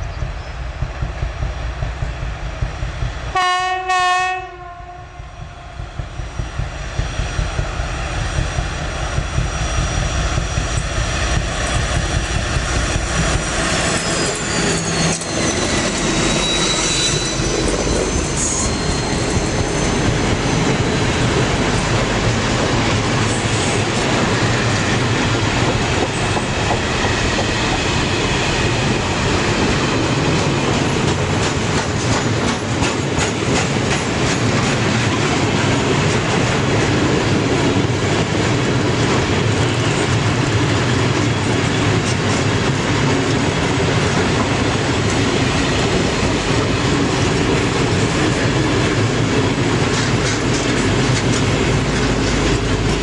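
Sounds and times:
diesel locomotive engine passing: 0.0s - 53.0s
freight train clattering on rails: 0.0s - 53.0s
locomotive horn blasts: 3.3s - 5.2s.

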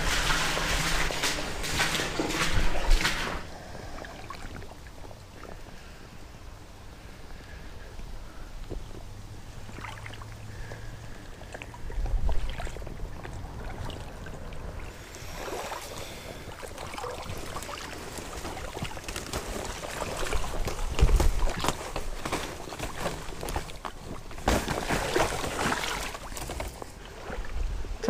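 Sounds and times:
leaves and branches rustling: 12.2s - 28.0s.

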